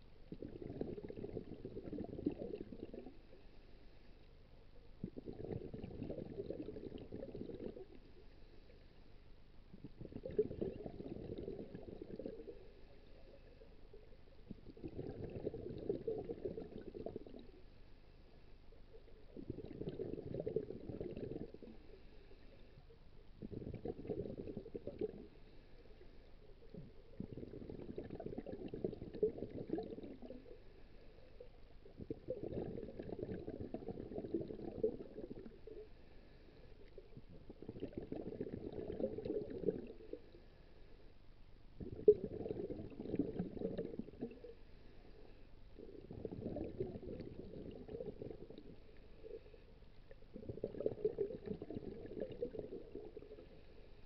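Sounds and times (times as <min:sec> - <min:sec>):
diver's breath bubbling underwater: 0:00.0 - 0:03.4, 0:05.0 - 0:08.1, 0:09.8 - 0:13.8, 0:14.5 - 0:17.6, 0:19.3 - 0:21.9, 0:23.4 - 0:25.5, 0:26.6 - 0:40.4, 0:41.8 - 0:49.5, 0:50.1 - 0:54.0.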